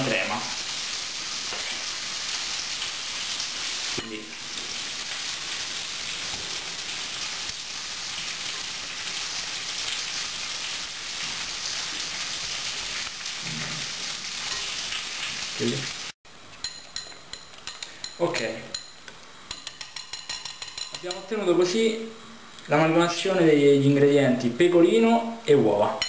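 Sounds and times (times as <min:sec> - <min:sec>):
meat sizzling in fat: 0:00.0 - 0:16.2
metal whisk clinking on glass: 0:16.6 - 0:21.3
whisk stirring in a bowl: 0:19.5 - 0:21.3.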